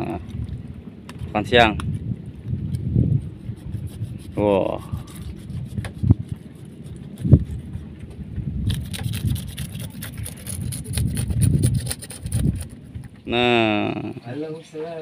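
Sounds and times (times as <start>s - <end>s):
low rumble: 0.0s - 14.2s
knife scraping fish scales: 3.1s - 7.8s, 8.7s - 12.8s.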